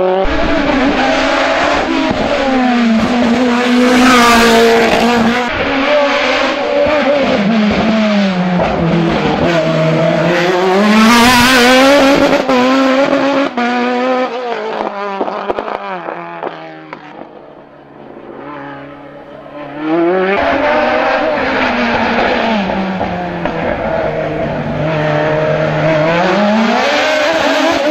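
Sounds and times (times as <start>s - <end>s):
race car engine revving: 0.0s - 17.3s, 18.0s - 27.9s.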